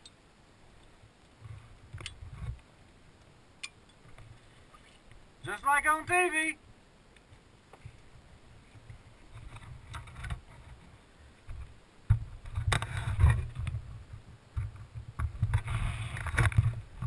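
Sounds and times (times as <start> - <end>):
rustling: 0.6 - 5.6, 7.1 - 17.0
wind rumbling on microphone: 7.3 - 17.0.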